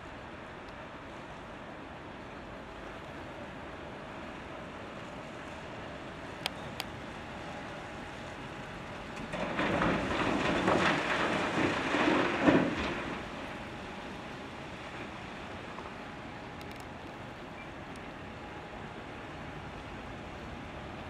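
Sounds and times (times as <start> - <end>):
rock pouring into truck body: 9.2 - 13.2.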